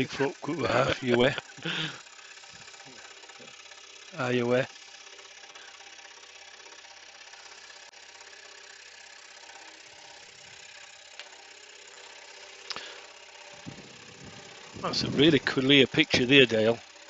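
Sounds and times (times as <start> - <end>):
scroll saw cutting wood: 0.0 - 17.0.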